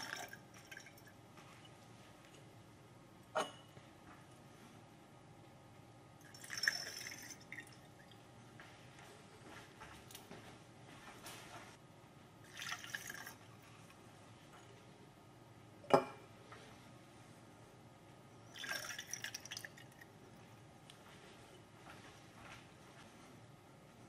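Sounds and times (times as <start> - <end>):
liquid pouring through funnel: 0.0 - 1.2, 6.2 - 8.2, 12.4 - 13.5, 18.5 - 20.1.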